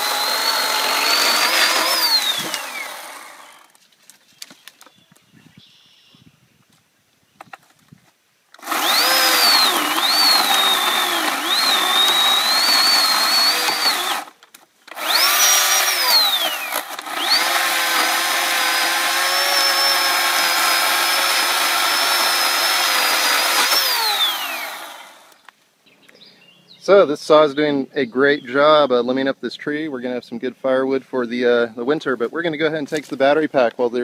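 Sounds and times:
electric chainsaw motor whining: 0:00.0 - 0:03.8, 0:08.6 - 0:25.4.

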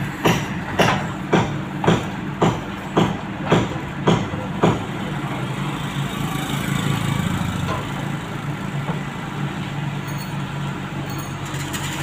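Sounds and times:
backhoe diesel engine running: 0:00.0 - 0:12.0
sharp knocks: 0:00.2 - 0:04.9.

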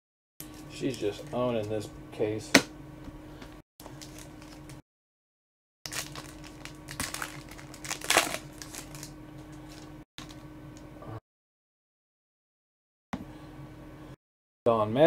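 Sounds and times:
foil wrapper tearing and crinkling: 0:03.9 - 0:04.8, 0:05.9 - 0:10.4.

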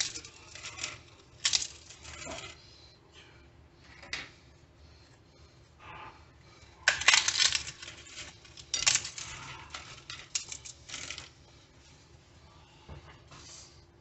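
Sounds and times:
taco shells cracking and crunching: 0:06.8 - 0:11.3.

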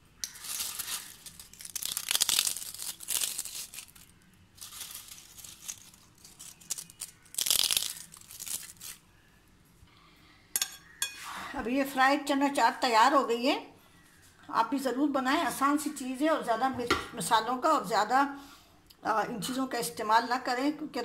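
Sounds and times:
crisp fried crackers crunching: 0:00.1 - 0:09.0.

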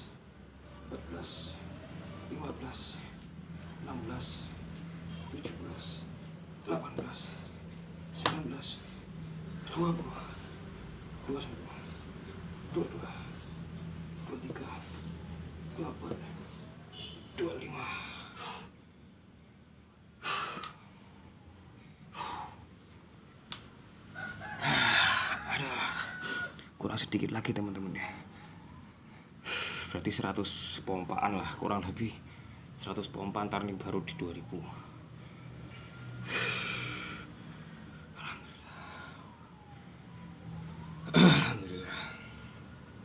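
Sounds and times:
man breathing hard: 0:04.4 - 0:05.6, 0:10.0 - 0:16.7, 0:17.7 - 0:18.9, 0:20.1 - 0:23.0, 0:24.4 - 0:26.8, 0:28.2 - 0:30.0, 0:34.8 - 0:39.5
man breathing out heavily: 0:20.2 - 0:22.9, 0:29.2 - 0:29.9, 0:34.9 - 0:39.3.

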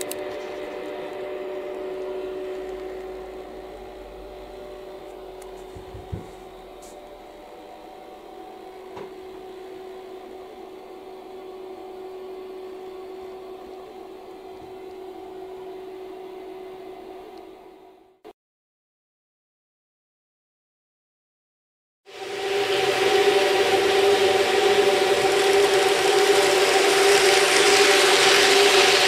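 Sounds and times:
model train motor hum: 0:00.0 - 0:18.2, 0:22.1 - 0:29.0
wheels rumbling on rails: 0:22.2 - 0:29.0.

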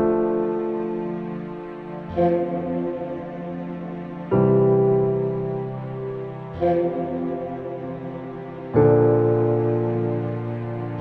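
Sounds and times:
slow sustained music chords: 0:00.0 - 0:11.0.

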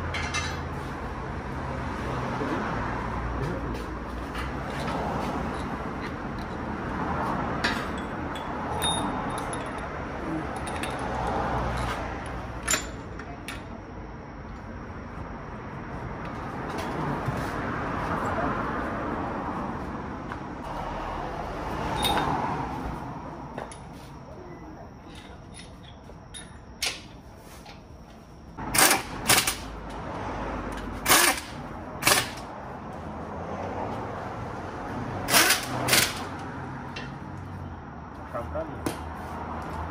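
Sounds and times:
metal tools clinking: 0:00.1 - 0:00.7, 0:07.6 - 0:13.7, 0:21.9 - 0:22.3, 0:25.0 - 0:27.2
sharp metallic clanks: 0:00.1 - 0:00.7.

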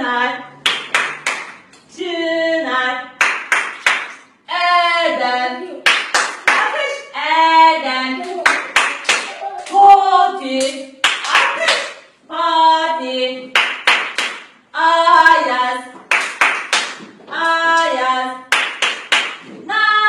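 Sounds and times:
person singing clapping song: 0:00.5 - 0:02.2, 0:03.1 - 0:12.4, 0:13.4 - 0:20.0
hand claps: 0:00.6 - 0:01.8, 0:03.2 - 0:04.2, 0:05.8 - 0:06.7, 0:08.2 - 0:09.8, 0:13.6 - 0:14.5, 0:16.0 - 0:17.1, 0:18.5 - 0:19.5.

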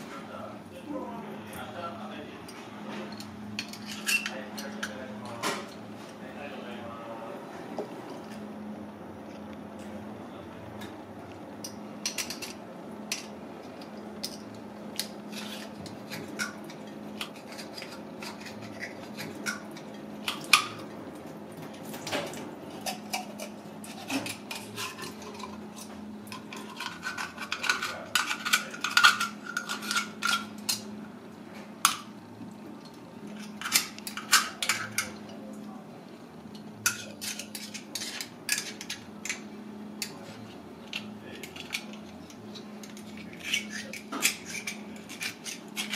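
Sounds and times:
steady low hum: 0:00.0 - 0:45.9
knife scraping clam shell: 0:15.0 - 0:20.6, 0:22.7 - 0:30.8, 0:36.9 - 0:39.4, 0:40.9 - 0:45.9.

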